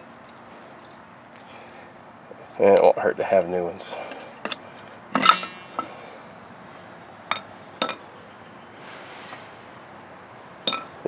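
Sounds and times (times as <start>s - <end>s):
brake pads clinking: 4.0s - 6.2s, 7.3s - 8.0s, 10.6s - 11.0s
metallic clank: 5.2s - 6.1s.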